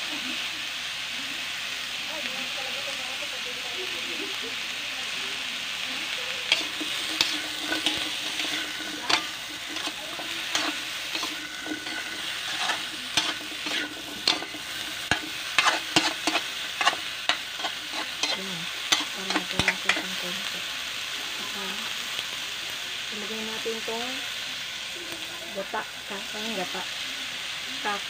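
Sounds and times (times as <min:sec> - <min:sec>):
vegetables sizzling in a wok: 0:00.0 - 0:28.0
metal spatula scraping a wok: 0:06.0 - 0:20.6.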